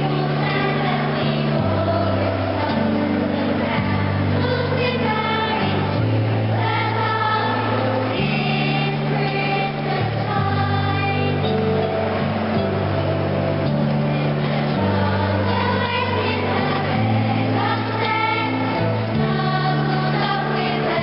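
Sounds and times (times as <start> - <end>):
children's choir singing: 0.0 - 21.0
held low accompaniment notes: 0.0 - 21.0.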